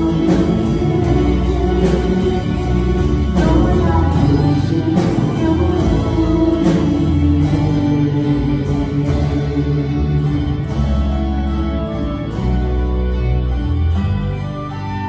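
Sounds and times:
man and woman singing: 0.0s - 10.6s
acoustic guitar strumming: 0.0s - 15.0s.

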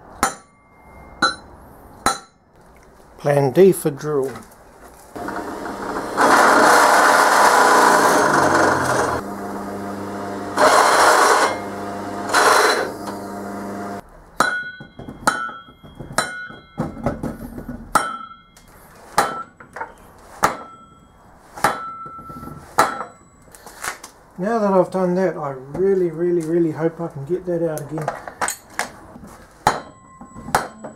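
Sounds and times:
drill press drilling metal: 5.2s - 9.7s, 10.3s - 14.0s.

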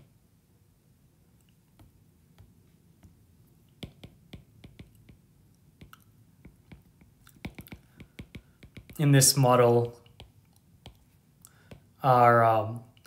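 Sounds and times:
stylus tapping on glass screen: 1.8s - 9.1s, 10.0s - 11.9s.

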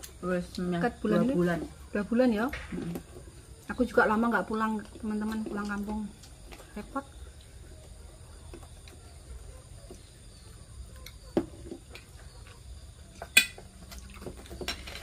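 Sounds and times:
cutlery clinking on ceramic plates: 13.2s - 13.6s, 14.6s - 15.0s.

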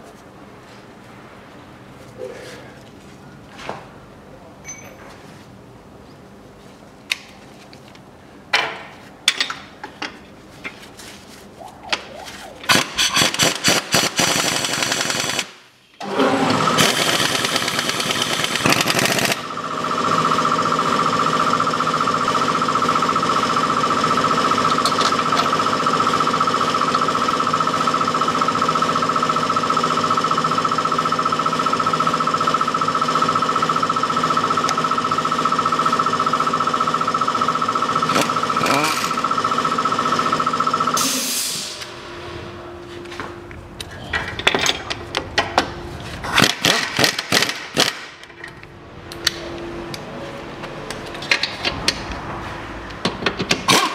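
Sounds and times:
steady mechanical whine: 11.4s - 46.2s.

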